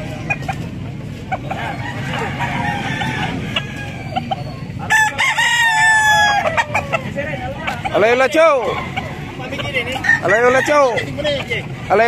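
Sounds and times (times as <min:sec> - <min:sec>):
penned birds clucking: 0:00.0 - 0:12.0
rooster crowing: 0:01.5 - 0:07.0, 0:09.9 - 0:11.0.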